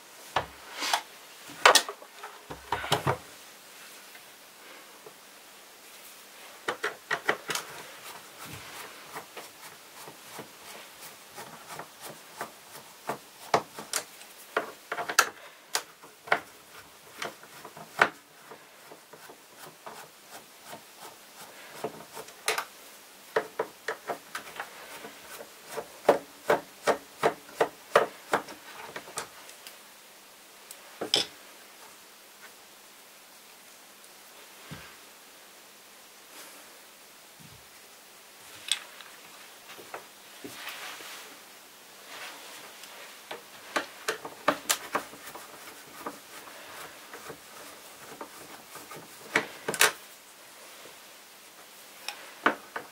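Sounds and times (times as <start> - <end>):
plastic clicks and scraping: 6.6 - 7.8.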